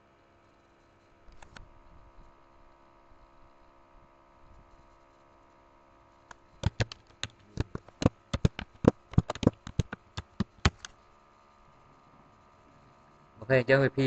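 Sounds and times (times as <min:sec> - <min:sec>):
faint steady hum: 0:00.0 - 0:14.0
typing on a keyboard: 0:06.6 - 0:10.9.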